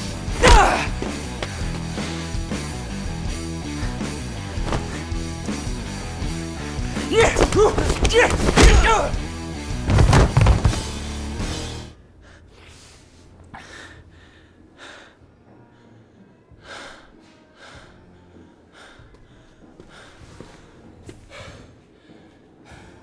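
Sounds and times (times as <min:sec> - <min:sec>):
man breathing hard and gasping: 0:12.2 - 0:15.4, 0:16.0 - 0:23.0.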